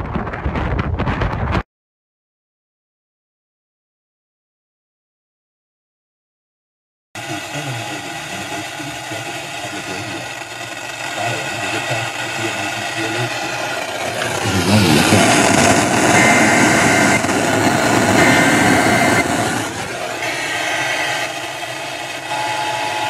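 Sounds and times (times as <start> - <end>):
buzzy digital screeches on radio: 7.2 - 23.0
vehicle engine noise: 7.2 - 23.0.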